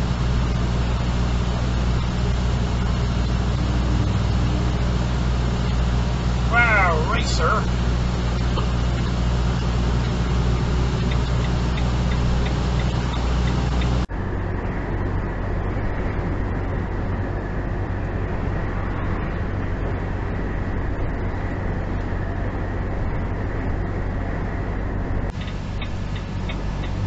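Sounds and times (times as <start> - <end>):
engine and road drone: 0.0 - 27.0
light regular ticking: 0.1 - 14.1, 25.3 - 27.0.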